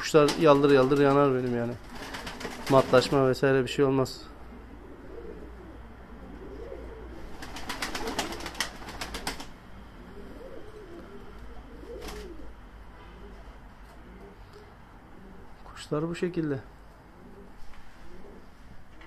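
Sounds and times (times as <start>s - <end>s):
pigeons cooing: 4.2s - 15.8s, 17.0s - 19.0s.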